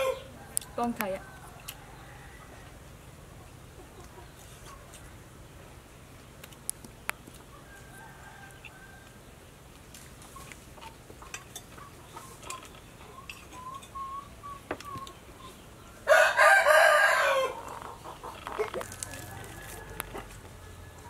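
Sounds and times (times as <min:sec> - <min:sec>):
rooster crowing: 0:00.0 - 0:02.8, 0:07.6 - 0:09.2, 0:16.0 - 0:17.7, 0:19.0 - 0:21.0.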